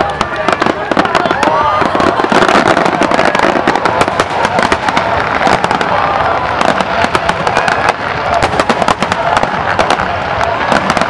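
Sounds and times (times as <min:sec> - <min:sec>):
fireworks bursting and crackling: 0:00.0 - 0:11.0.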